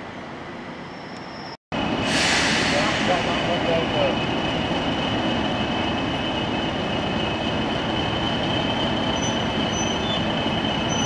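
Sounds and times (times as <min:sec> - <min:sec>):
diesel locomotive engine rumble: 0:00.0 - 0:11.0.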